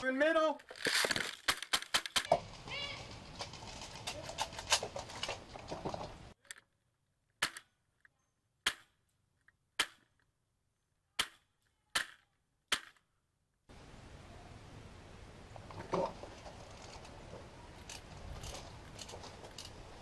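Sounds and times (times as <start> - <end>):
rustling field noise: 0.0 - 6.4, 13.7 - 20.0.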